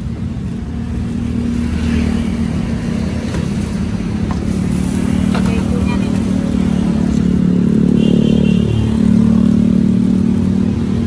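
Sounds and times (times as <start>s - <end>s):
motorcycle engine running: 0.2s - 11.0s.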